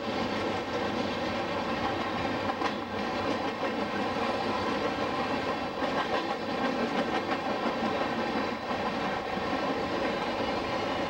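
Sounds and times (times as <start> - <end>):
train wheels rumbling on rail: 0.0 - 11.0
wheels clicking over rail joints: 0.4 - 11.0.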